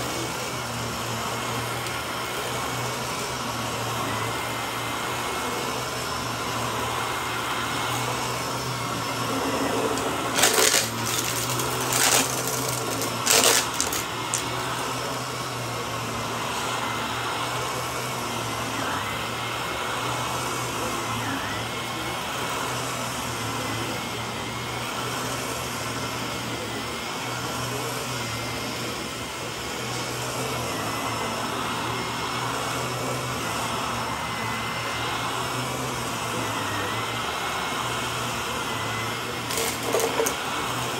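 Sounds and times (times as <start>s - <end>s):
upright vacuum cleaner humming: 0.0s - 40.9s
debris crunching in vacuum: 8.9s - 14.5s.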